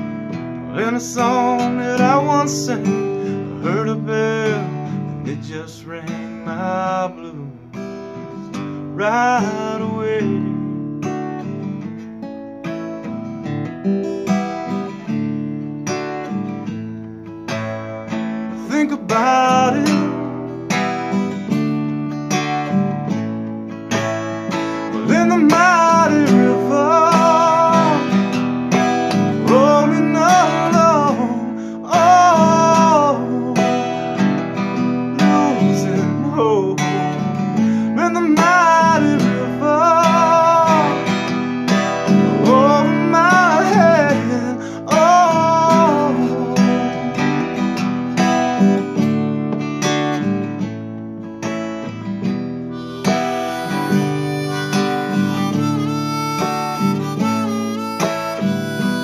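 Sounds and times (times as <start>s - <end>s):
acoustic guitar strummed: 0.0s - 59.0s
harmonica melody: 17.5s - 21.7s, 23.9s - 36.0s, 36.8s - 47.7s, 52.6s - 59.0s.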